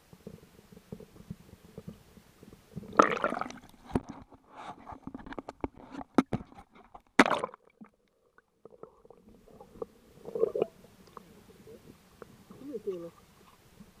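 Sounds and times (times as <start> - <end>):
underwater gurgling and sloshing: 0.0 - 14.0
water splashing at surface: 2.9 - 4.1.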